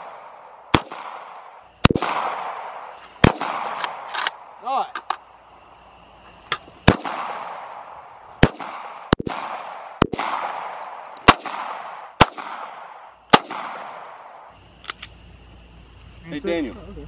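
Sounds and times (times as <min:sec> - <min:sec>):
gunshots with echo: 0:00.0 - 0:04.1, 0:06.9 - 0:07.8, 0:08.4 - 0:14.3.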